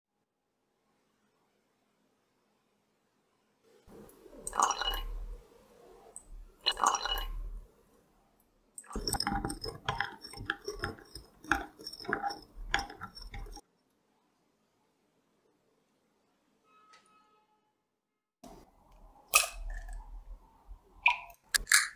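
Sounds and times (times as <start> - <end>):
straw stirring drink in glass: 3.9 - 5.4, 6.2 - 7.6, 8.8 - 13.6.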